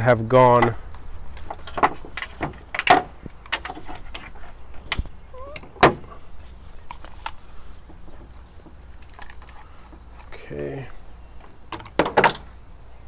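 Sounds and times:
cables and headset handled clicking: 0:06.8 - 0:10.4.

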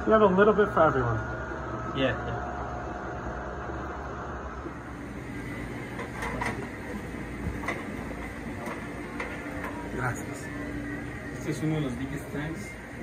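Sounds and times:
aquarium hum and hiss: 0:00.0 - 0:13.0.

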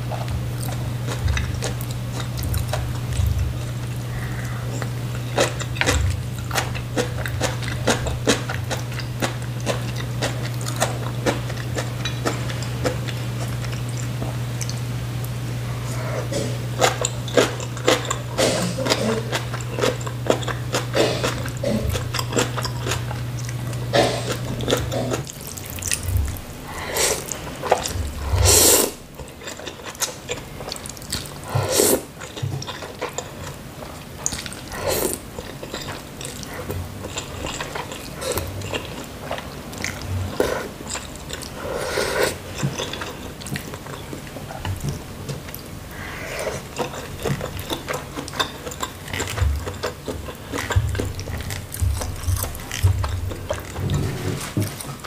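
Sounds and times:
noodles slurped and chewed: 0:00.0 - 0:14.8, 0:15.6 - 0:55.0
low hum: 0:00.0 - 0:17.3, 0:21.4 - 0:29.2.

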